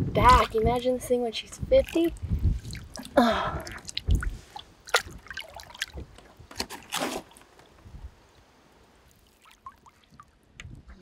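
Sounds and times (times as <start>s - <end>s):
water splashing against boat: 0.6s - 7.4s
water lapping: 0.8s - 6.2s, 9.1s - 10.4s.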